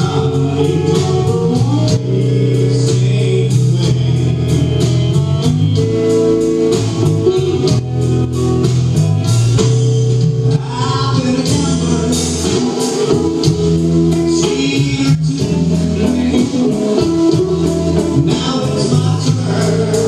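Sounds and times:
person singing: 0.0s - 5.0s, 10.5s - 20.0s
drum kit: 0.0s - 20.0s
electric guitar: 0.0s - 20.0s
keyboards: 0.0s - 20.0s.

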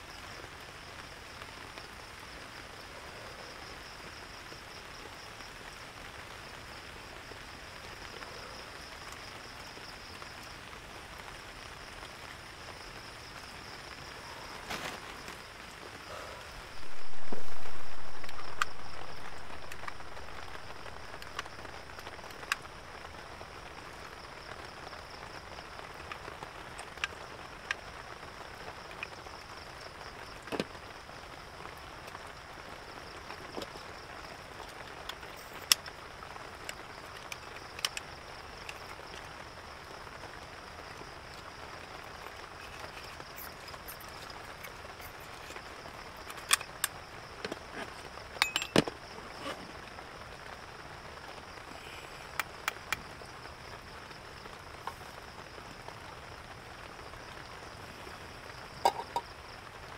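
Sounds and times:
steady rain falling: 0.0s - 59.9s
sharp drips and taps: 58.8s - 59.3s.

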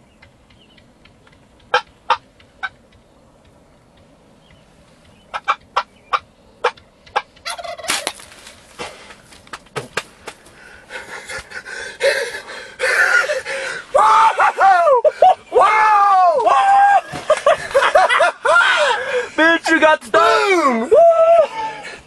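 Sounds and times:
turkey calling: 0.0s - 8.6s
bird wings flapping in grass: 7.4s - 10.6s.

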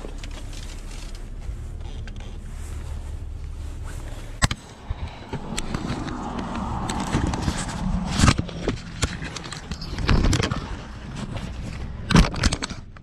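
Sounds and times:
low rumble: 0.0s - 12.8s.

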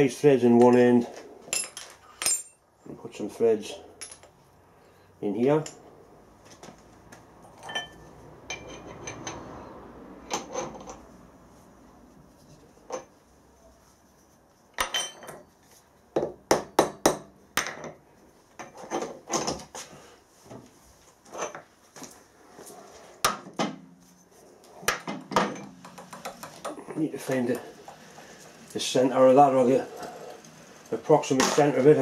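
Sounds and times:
metal clinks and knocks: 1.5s - 2.6s, 4.0s - 4.4s, 7.4s - 9.5s, 14.8s - 15.5s, 24.9s - 26.8s.

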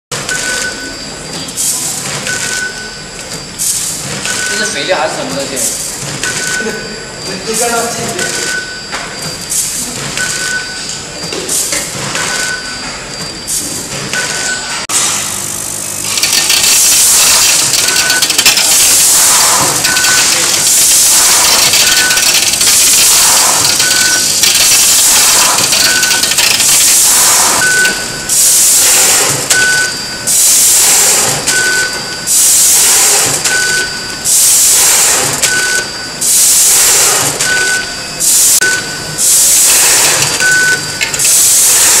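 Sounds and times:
short high beep: 17.7s - 22.5s, 23.6s - 24.6s, 27.4s - 28.4s.

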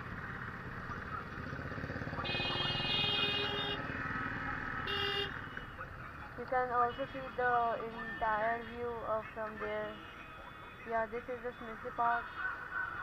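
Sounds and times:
motorcycle engine idling: 0.0s - 6.4s
vehicle horn: 2.2s - 3.9s, 4.8s - 5.8s.

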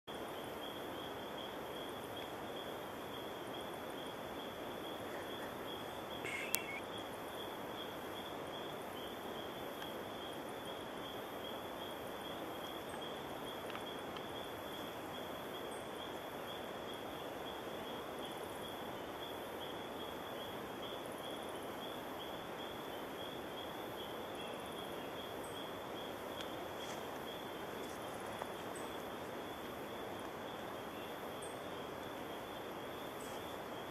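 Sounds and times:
background hiss: 0.1s - 33.9s
pulsing insect trill: 0.2s - 33.9s
short chirp: 6.3s - 6.8s.

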